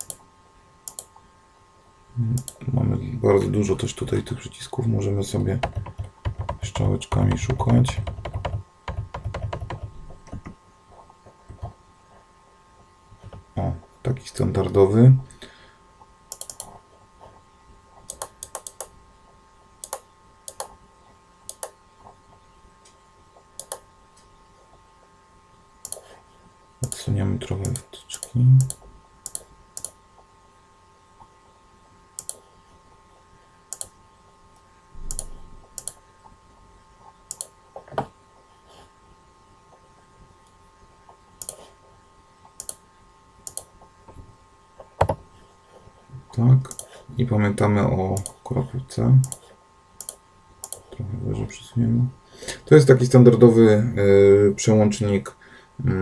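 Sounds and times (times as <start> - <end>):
computer mouse clicks: 0.0 - 0.2, 0.8 - 1.1, 2.4 - 2.6, 16.3 - 16.8, 18.0 - 18.9, 19.8 - 20.8, 21.5 - 21.8, 23.6 - 23.9, 25.8 - 26.1, 26.8 - 30.0, 32.2 - 32.4, 33.7 - 34.0, 35.0 - 36.0, 37.3 - 37.9, 41.4 - 41.7, 42.6 - 42.8, 43.4 - 43.7, 46.7 - 47.0, 48.2 - 48.4, 49.2 - 51.0
faint steady hum: 0.0 - 56.0
mouse and keyboard clicks: 16.3 - 16.7, 18.0 - 18.9, 19.8 - 20.7, 21.5 - 21.8, 23.6 - 23.8.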